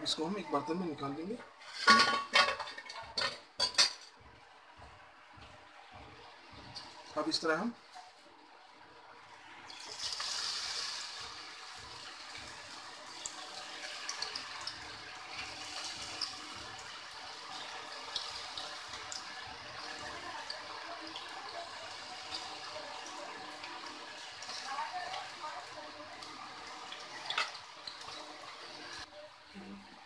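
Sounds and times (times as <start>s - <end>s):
deep-frying sizzle in hot oil: 6.5s - 29.4s
oil popping and crackling: 9.7s - 29.1s.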